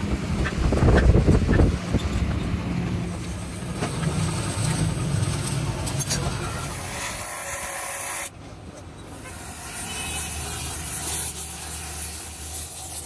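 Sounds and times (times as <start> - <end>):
grinder disc grinding metal: 3.9 - 8.3
gas torch flame hissing: 6.3 - 8.3, 9.1 - 13.0.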